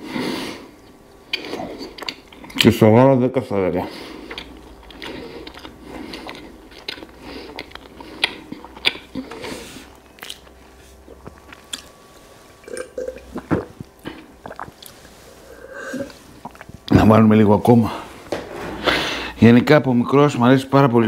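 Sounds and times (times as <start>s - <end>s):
chewing bread: 1.3s - 2.7s, 3.9s - 12.0s, 13.3s - 15.2s.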